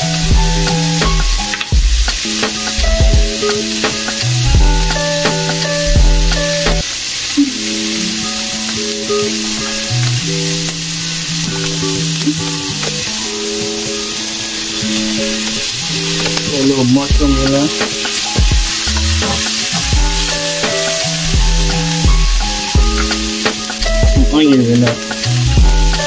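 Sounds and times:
background music with bass: 0:00.0 - 0:06.8, 0:15.9 - 0:26.0
meat sizzling in a frying pan: 0:00.0 - 0:26.0.

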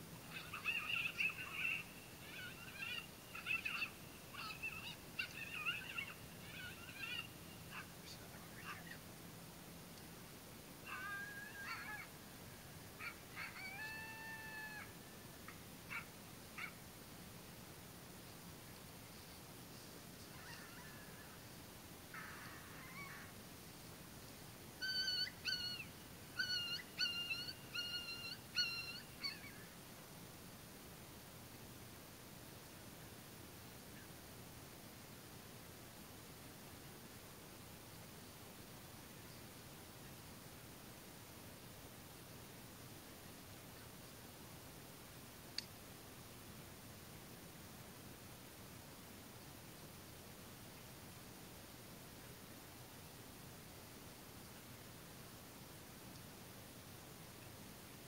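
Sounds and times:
coyotes yipping and howling: 0:00.2 - 0:09.0, 0:10.8 - 0:12.2, 0:12.9 - 0:16.8, 0:20.2 - 0:23.4, 0:24.8 - 0:29.8
short high calls: 0:00.3 - 0:08.0, 0:24.8 - 0:29.7.

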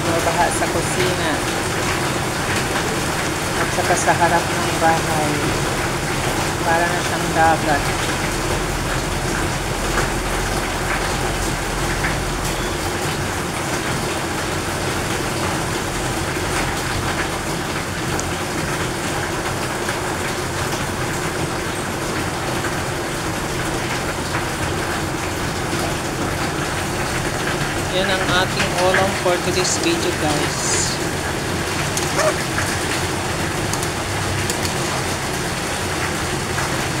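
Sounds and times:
heavy rain pouring: 0:00.0 - 0:37.0.

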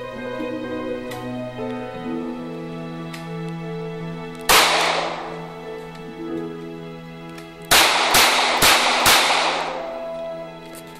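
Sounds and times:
pistol shots with echo: 0:04.5 - 0:05.5, 0:07.7 - 0:10.0.

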